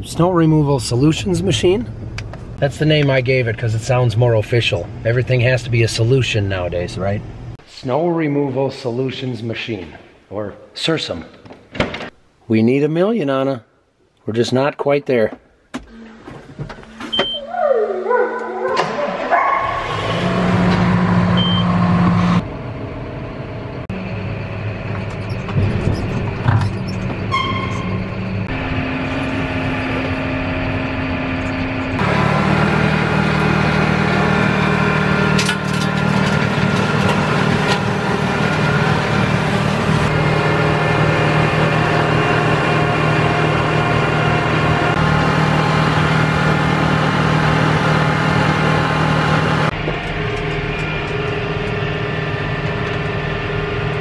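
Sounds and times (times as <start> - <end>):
tractor engine running: 19.9 - 54.0.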